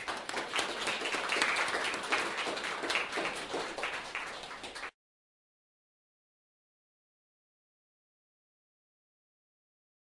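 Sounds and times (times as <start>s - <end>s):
audience applauding: 0.0s - 5.0s.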